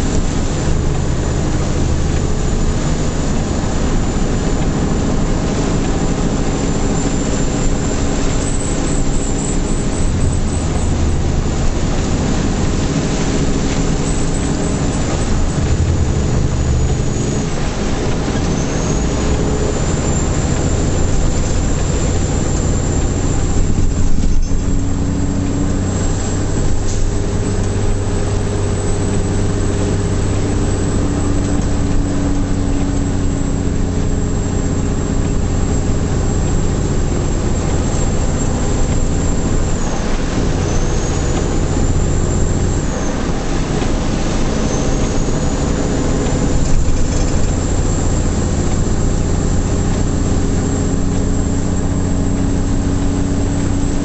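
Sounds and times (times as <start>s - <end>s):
truck diesel engine running: 0.0s - 54.0s
tyre noise on wet road: 0.0s - 54.0s.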